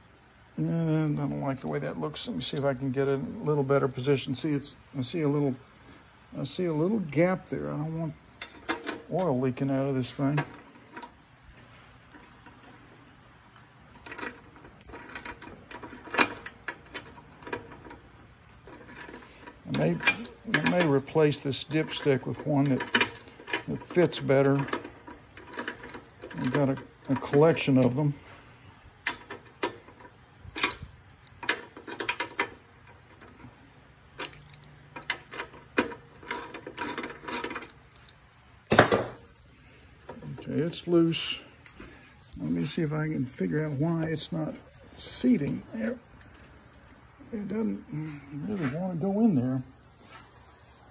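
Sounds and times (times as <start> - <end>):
metal parts clicking and knocking: 8.4 - 9.4, 13.9 - 28.1, 29.0 - 39.2.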